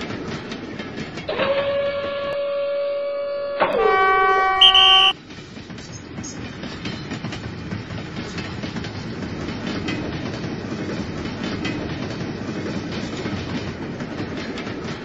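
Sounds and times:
train rumbling past: 0.0s - 15.0s
wheels clacking over track joints: 5.3s - 15.0s.

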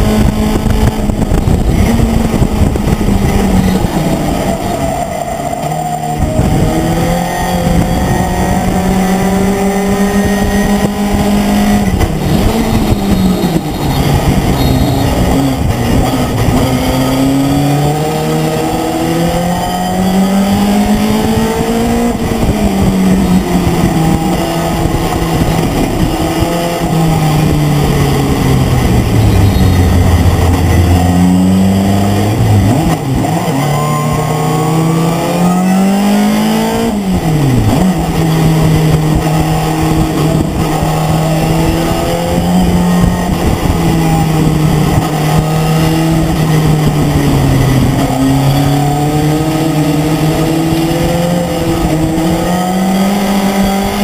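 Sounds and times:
truck engine revving: 0.0s - 54.0s
wind and road noise: 0.0s - 54.0s.

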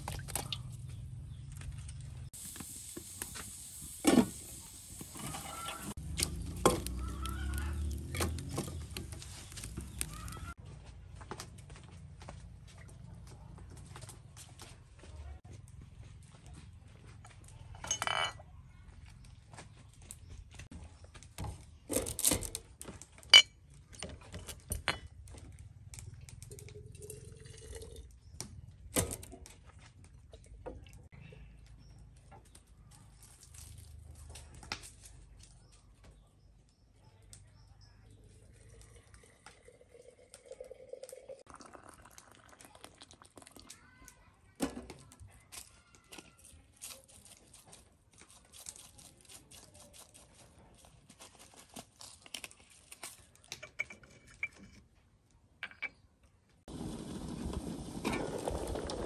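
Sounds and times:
clinks of tableware being set down: 17.8s - 18.4s.

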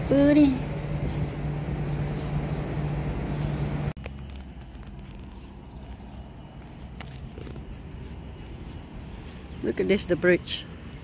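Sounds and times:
steady low hum: 0.0s - 11.0s
faint high chirps: 3.5s - 11.0s
high-pitched insect drone: 4.0s - 11.0s.

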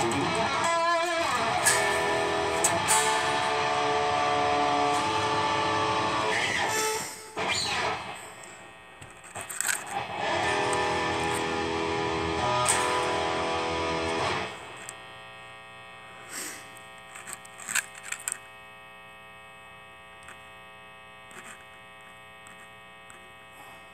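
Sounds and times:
guitar string clicks: 0.0s - 6.8s, 9.0s - 15.0s
electric guitar chord strummed: 0.0s - 8.8s, 9.8s - 14.9s
amplifier hum and buzz: 0.0s - 23.9s.

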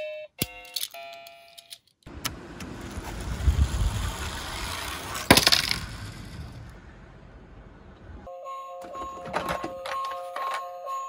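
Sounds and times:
toy car rolling down a slope: 2.6s - 6.8s.

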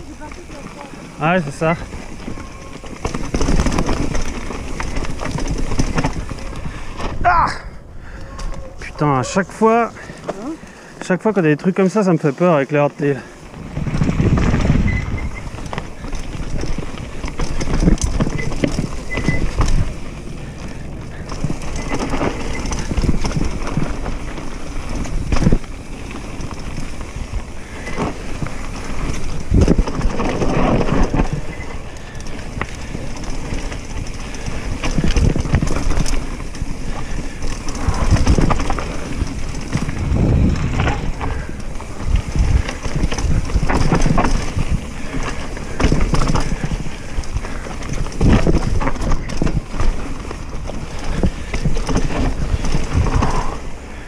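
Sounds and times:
bike chain and frame rattling: 0.0s - 54.0s
bike tyres rolling over dirt and stones: 0.0s - 54.0s.

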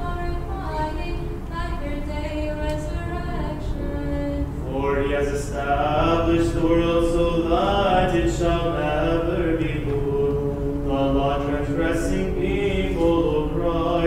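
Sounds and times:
voices singing liturgical chant: 3.1s - 14.0s.

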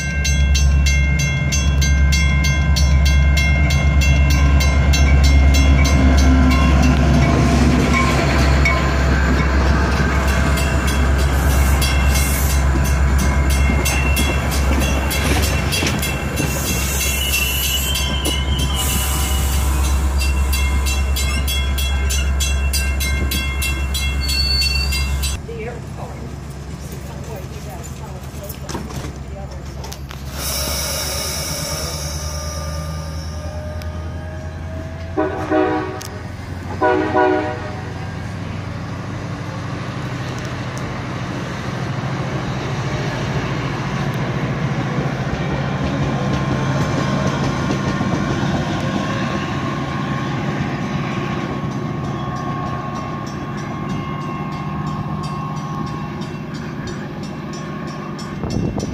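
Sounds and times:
diesel locomotive engine under load: 0.0s - 58.9s
train coaches clattering: 0.0s - 58.9s
train horn blasts: 35.0s - 38.0s.

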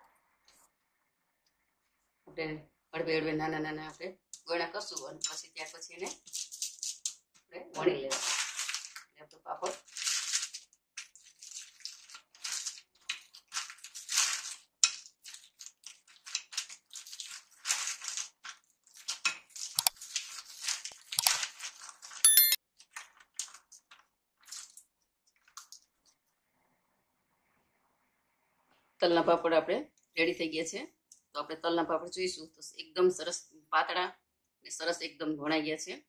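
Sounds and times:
rolling pin crunching on paper: 9.7s - 22.2s.

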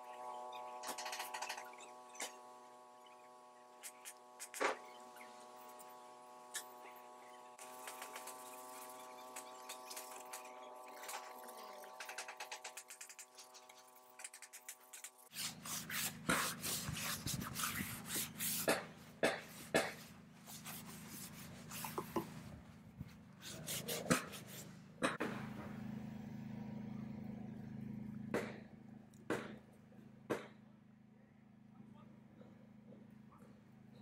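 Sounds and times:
brush and rag rubbing wood: 3.8s - 4.8s, 7.6s - 24.8s
sharp clicks and knocks: 11.9s - 15.2s.

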